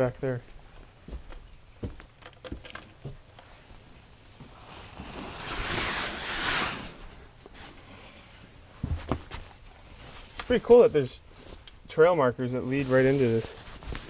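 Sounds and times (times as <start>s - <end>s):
jacket fabric rustling: 3.5s - 11.6s.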